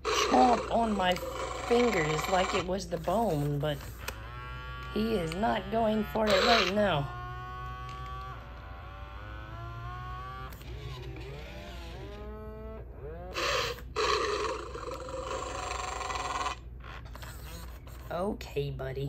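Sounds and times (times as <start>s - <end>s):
toy dinosaur moaning call: 0.0s - 2.7s, 4.0s - 10.5s, 13.2s - 17.2s
toy dinosaur rasping roar: 0.0s - 17.6s
toy dinosaur growls: 0.0s - 17.7s.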